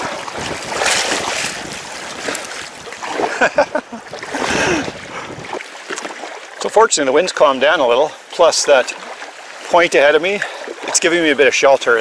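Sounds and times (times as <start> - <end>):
wind on microphone: 0.0 - 5.7
water splashing against kayak: 0.0 - 12.0.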